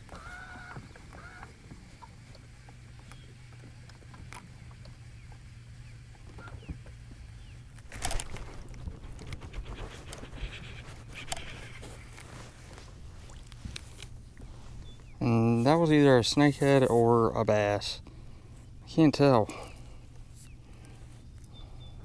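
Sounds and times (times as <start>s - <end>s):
low steady hum: 0.0s - 22.0s
fish splashing: 7.8s - 15.0s.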